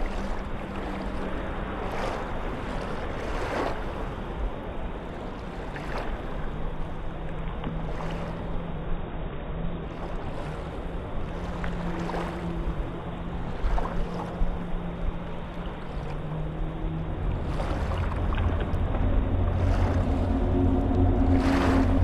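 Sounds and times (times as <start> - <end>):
small waves lapping on sand: 0.0 - 8.9, 9.8 - 22.0
steady low hum: 0.0 - 22.0
little water splashes: 17.2 - 22.0.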